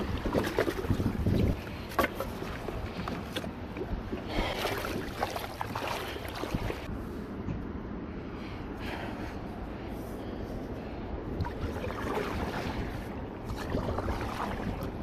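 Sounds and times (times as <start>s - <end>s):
water splashing around kayak: 0.0s - 6.9s, 11.3s - 15.0s.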